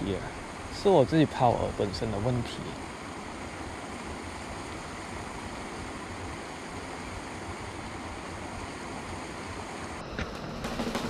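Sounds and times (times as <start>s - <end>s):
steady outdoor rushing noise: 0.0s - 11.0s.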